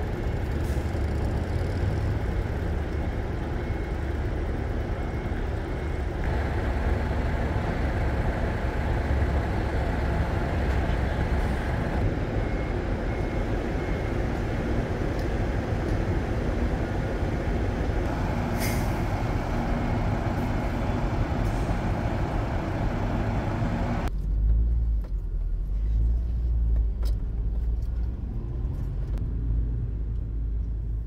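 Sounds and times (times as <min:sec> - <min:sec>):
car driving rumble: 0:00.0 - 0:31.0
vehicle noise: 0:00.0 - 0:31.0
air brake hiss: 0:18.5 - 0:19.1.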